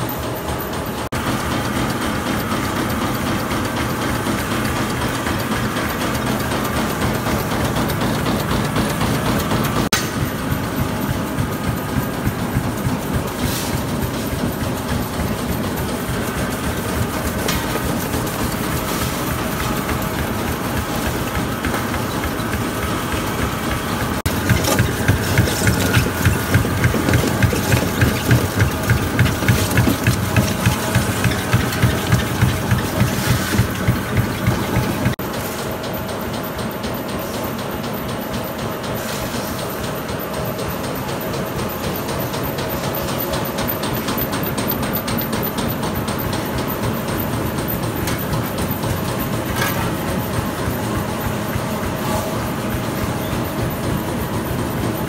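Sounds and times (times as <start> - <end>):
conveyor belts running: 0.0 - 55.0
rhythmic pulsing of grinding roller: 0.0 - 55.0
tyre grinding mill: 1.2 - 35.4.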